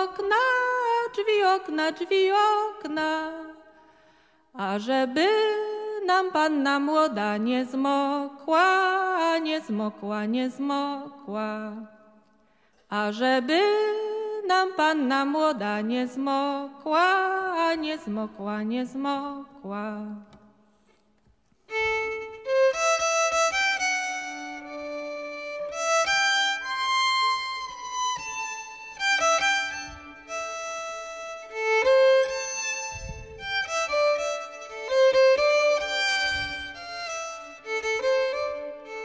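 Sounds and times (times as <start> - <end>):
woman singing: 0.0 - 3.8, 4.6 - 12.0, 12.9 - 20.6
fiddle folk melody: 21.7 - 39.0.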